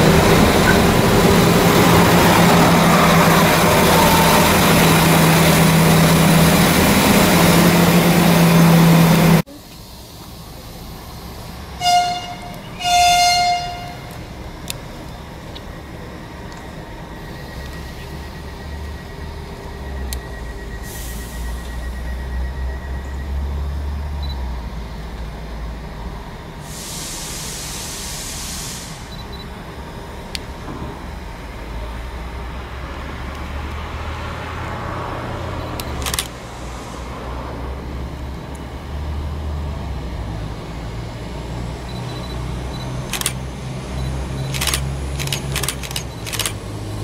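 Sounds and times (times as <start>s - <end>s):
diesel railcar engine drone: 0.0s - 47.0s
hiss: 26.6s - 29.2s
sharp clicks: 35.8s - 36.4s, 43.0s - 43.4s, 44.4s - 46.6s.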